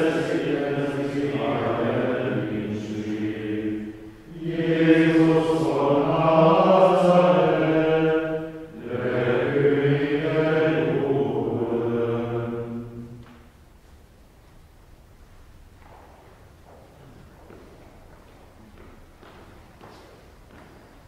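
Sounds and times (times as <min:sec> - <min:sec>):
men chanting in unison: 0:00.0 - 0:12.8.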